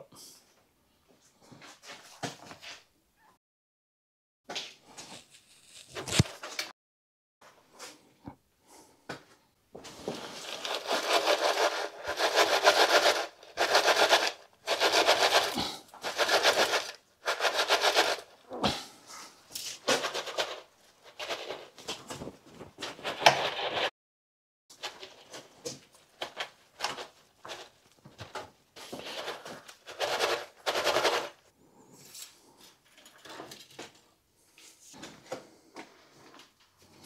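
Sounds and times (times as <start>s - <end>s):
coarse soil scraping: 5.2s - 6.6s.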